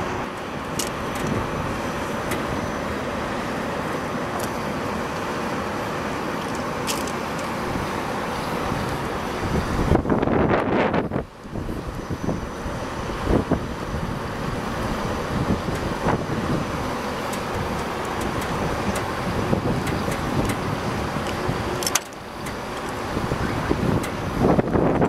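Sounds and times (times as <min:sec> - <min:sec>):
distant city traffic: 0:00.0 - 0:25.0
wind: 0:00.0 - 0:25.0.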